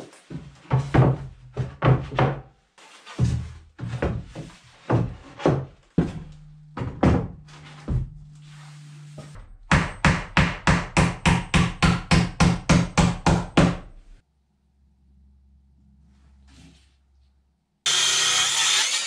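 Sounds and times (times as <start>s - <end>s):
hammer striking wood: 9.7s - 14.0s.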